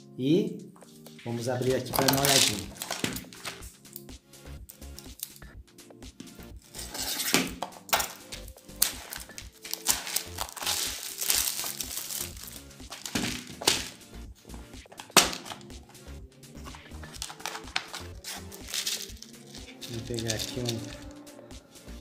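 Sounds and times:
background music: 0:00.0 - 0:22.0
plastic wrap crinkling: 0:01.8 - 0:03.6, 0:06.7 - 0:14.0, 0:16.6 - 0:21.2
scissors cutting: 0:06.8 - 0:14.0, 0:16.7 - 0:21.2.

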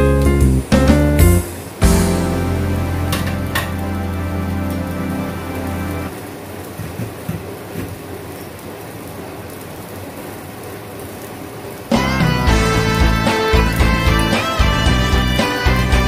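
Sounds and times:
background music: 0:00.0 - 0:06.1, 0:11.9 - 0:16.0.

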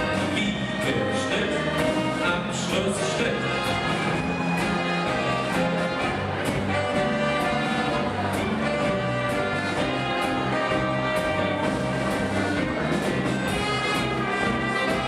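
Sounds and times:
dance band with brass: 0:00.0 - 0:15.0.

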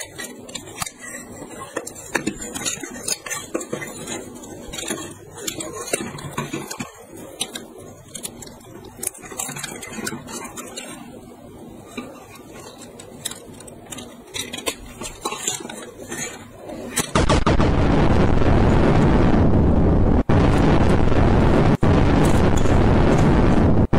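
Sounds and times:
plastic toy parts clicking: 0:00.0 - 0:11.1, 0:11.8 - 0:17.2
loud steady rushing noise: 0:17.2 - 0:23.9.

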